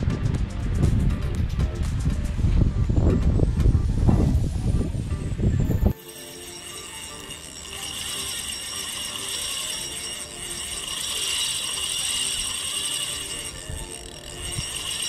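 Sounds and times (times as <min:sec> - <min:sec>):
fishing reel drag clicking: 0:05.7 - 0:15.0.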